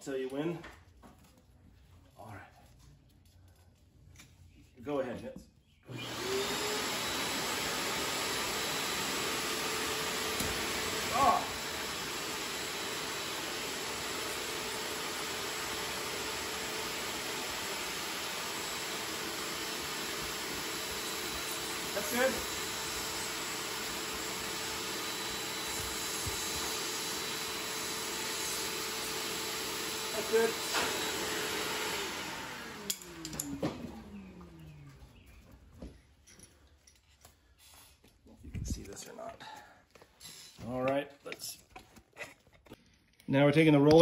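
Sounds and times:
electric air pump running: 5.9 - 34.9.

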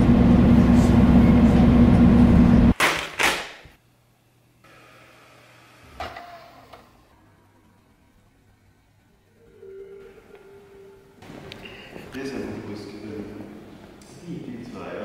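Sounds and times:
rail car rumbling: 0.0 - 2.7.

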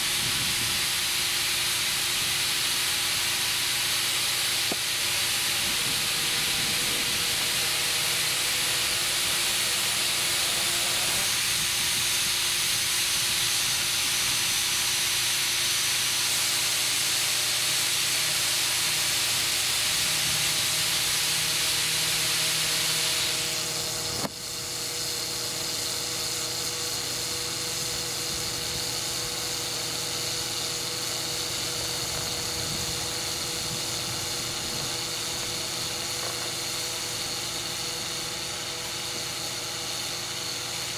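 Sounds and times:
air hissing from inner tube: 0.0 - 40.9
valve click: 4.5 - 5.2, 24.0 - 24.6, 35.3 - 38.0.

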